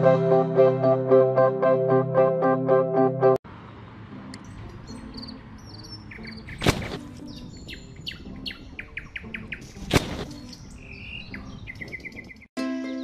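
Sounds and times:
small birds chirping: 4.4 - 12.5.

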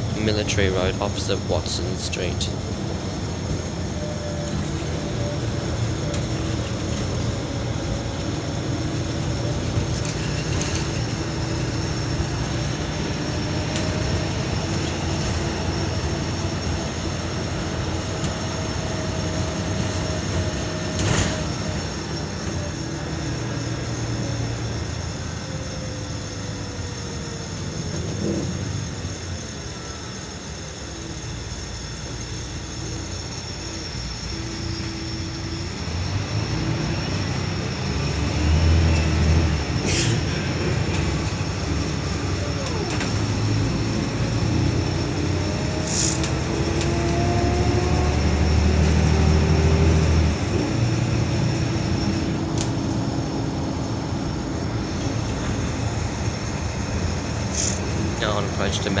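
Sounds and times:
bus diesel engine: 0.0 - 59.0
road noise: 0.0 - 59.0.

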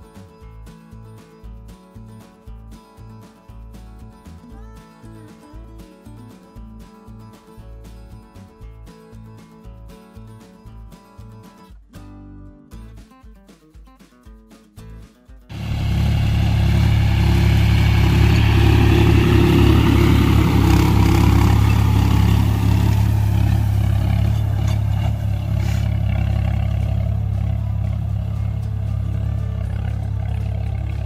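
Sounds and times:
tractor diesel engine running: 15.5 - 31.0.

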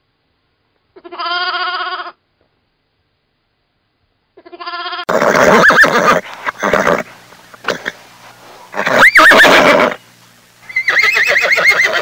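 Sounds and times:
sheep bleating: 1.0 - 2.2
horse whinnying: 5.0 - 8.0, 8.7 - 10.0, 10.7 - 12.0.

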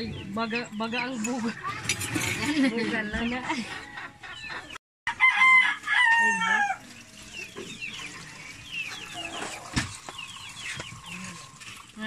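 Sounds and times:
rooster crowing: 5.1 - 6.9.

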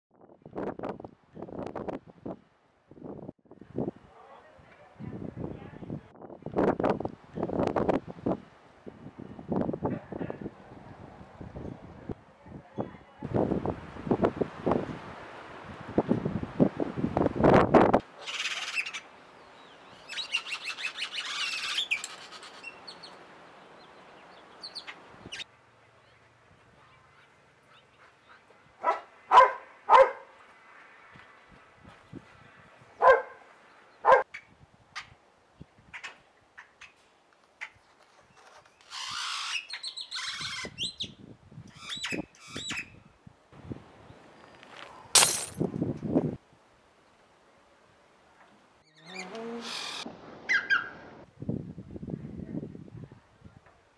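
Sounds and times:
small birds chirping: 18.2 - 28.6, 37.6 - 43.0, 48.8 - 50.1
birds chirping and squawking: 19.9 - 23.2, 38.8 - 41.1.

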